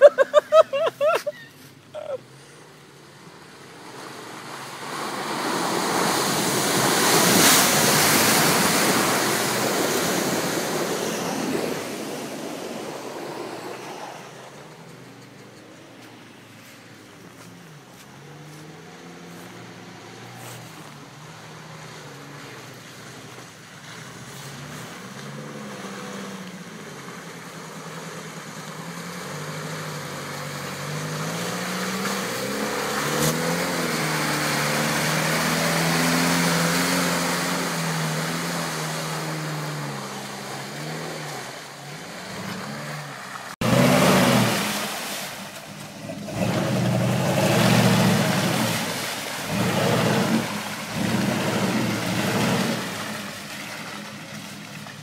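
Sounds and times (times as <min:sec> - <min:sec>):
tyres churning through mud: 0:00.0 - 0:55.0
suv engine revving: 0:02.0 - 0:55.0.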